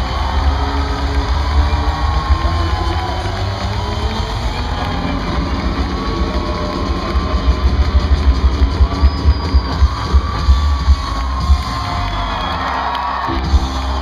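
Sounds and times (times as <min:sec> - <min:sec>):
live rock band playing: 0:00.0 - 0:14.0
kick drum beat: 0:07.3 - 0:12.1.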